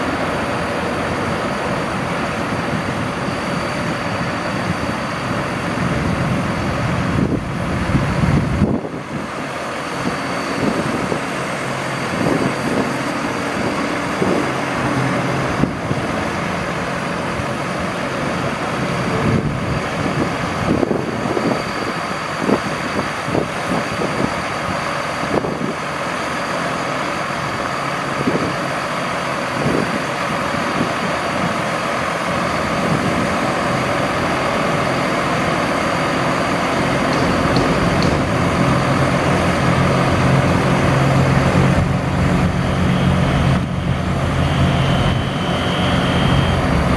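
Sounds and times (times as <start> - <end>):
heavy low rumble: 0.0 - 25.8, 32.4 - 46.9
truck engine running: 0.0 - 46.9
crane clunks: 30.8 - 46.9.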